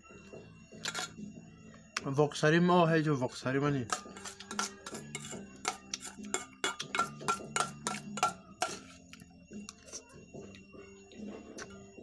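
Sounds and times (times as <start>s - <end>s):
metal spoon clinking in steel bowl: 0.8s - 1.2s, 3.8s - 8.9s.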